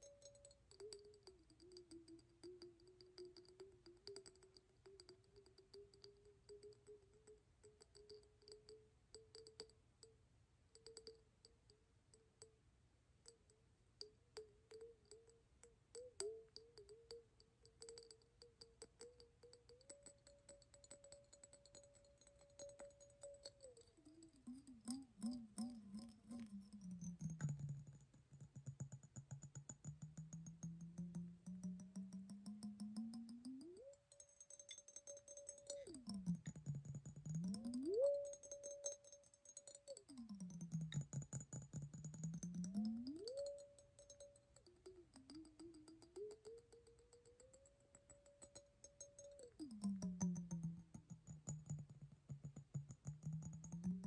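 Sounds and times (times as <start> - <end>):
fingernails tapping on glass jar: 16.0 - 54.0
ringing tone: 37.4 - 40.0.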